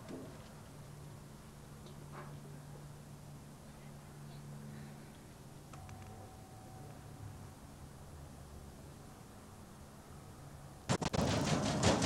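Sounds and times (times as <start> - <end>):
faint steady low hum: 0.0 - 10.9.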